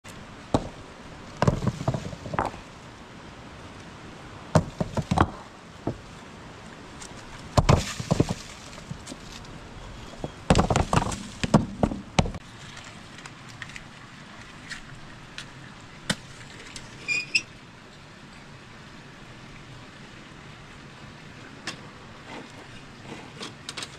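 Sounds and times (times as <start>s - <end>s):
rocks knocking together: 0.5s - 0.8s, 1.4s - 2.6s, 4.5s - 6.0s, 7.0s - 12.4s.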